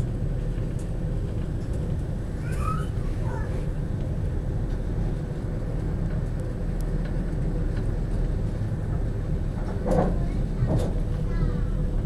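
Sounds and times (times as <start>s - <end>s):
constant hum: 0.0s - 12.0s
train rumbling: 0.0s - 12.0s.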